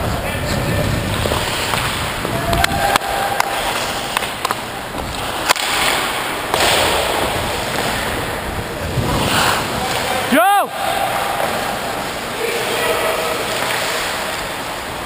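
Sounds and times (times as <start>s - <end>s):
hockey sticks and puck clacking: 0.0s - 10.4s, 11.1s - 15.0s
skate blades scraping ice: 0.3s - 8.2s, 8.9s - 10.3s.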